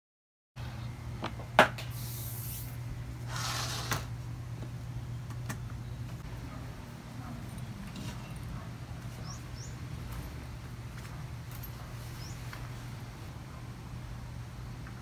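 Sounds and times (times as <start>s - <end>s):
low steady hum: 0.6s - 15.0s
brushing and sliding: 2.3s - 4.1s.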